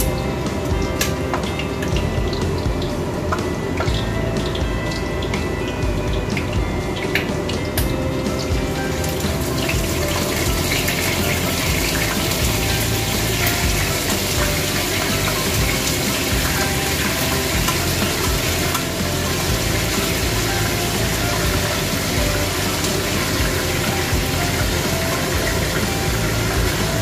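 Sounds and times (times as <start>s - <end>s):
light background music: 0.0s - 27.0s
oil sizzling in frying pan: 0.0s - 27.0s.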